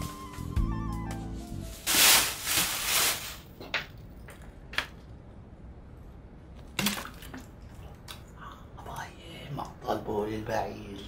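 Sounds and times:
plastic bottle crinkling: 1.8 - 3.6.

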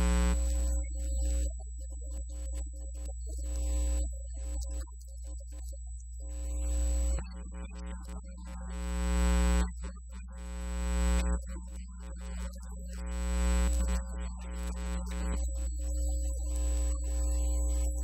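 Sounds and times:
steady low hum: 0.0 - 2.1, 5.7 - 18.0.

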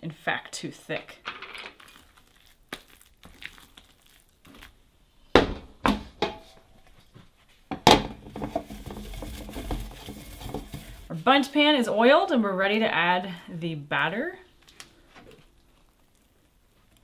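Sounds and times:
clattering and shuffling: 6.2 - 11.1
spatula working batter in a bowl: 8.3 - 11.1.

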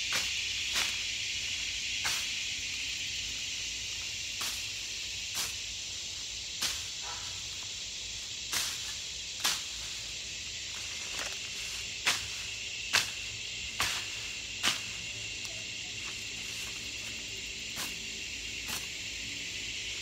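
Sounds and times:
crickets and insects chirping: 0.0 - 20.0
cane cutter swishing through grass: 8.5 - 10.0, 13.8 - 18.0, 18.6 - 19.0.

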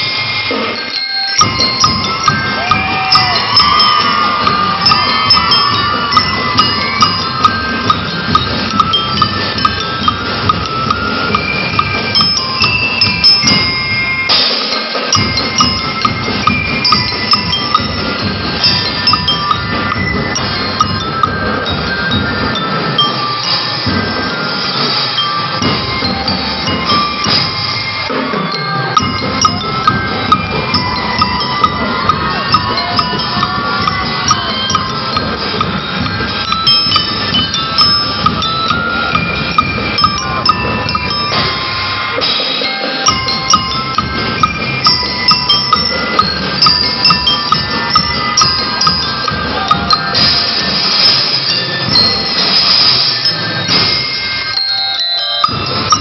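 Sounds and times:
bell lyres ringing melody: 0.0 - 56.0
snare drums march rhythm: 1.4 - 54.6, 55.4 - 56.0.

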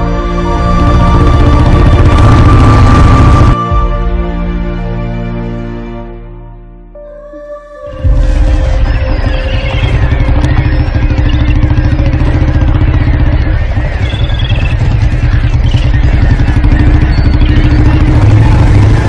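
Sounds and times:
motorcycle engines running: 0.0 - 3.6, 7.9 - 19.0.

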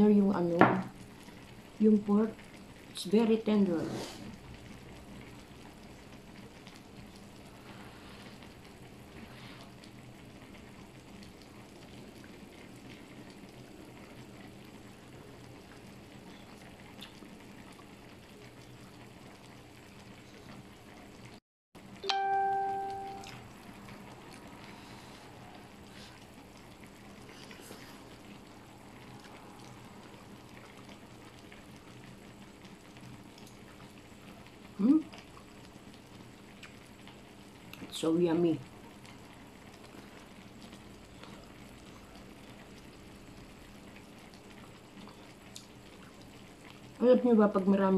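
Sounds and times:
hotpot simmering: 0.0 - 47.9
bell-like ding: 22.0 - 23.3.

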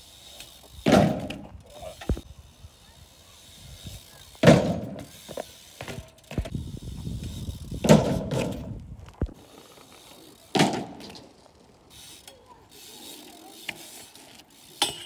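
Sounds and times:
bike wheels clicking and knocking: 0.0 - 15.0
bike landing with loud thud: 0.8 - 1.5, 4.4 - 5.1, 7.8 - 8.8, 10.5 - 11.2.

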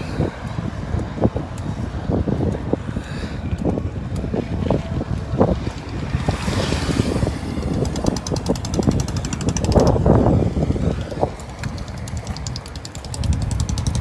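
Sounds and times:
low road rumble: 0.0 - 14.0
wind buffeting microphone: 0.0 - 14.0
rapid even ticking: 7.6 - 10.2, 11.4 - 14.0.

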